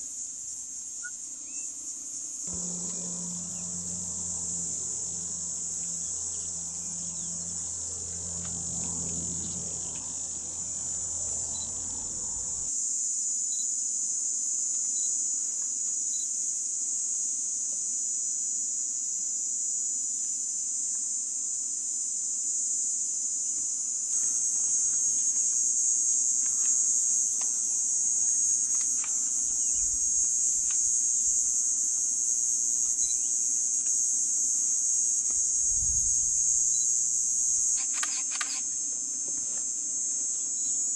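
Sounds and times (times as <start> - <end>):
insect chorus shrilling: 0.9 - 12.8, 23.3 - 38.9, 39.6 - 40.9
low steady hum: 2.5 - 12.7, 24.2 - 33.4, 35.2 - 37.7.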